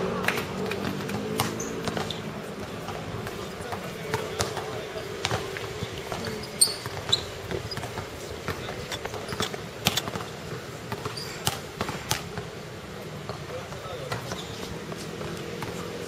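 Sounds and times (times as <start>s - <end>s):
basketball bouncing on hard court: 0.2s - 12.6s, 13.2s - 15.9s
short high squeaks: 6.3s - 7.9s, 11.1s - 11.4s.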